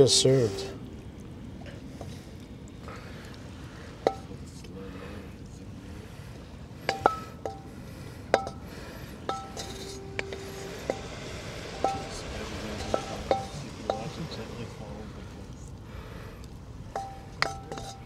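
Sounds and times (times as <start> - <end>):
wok clinking: 4.0 - 4.3, 6.8 - 14.2, 16.9 - 18.0.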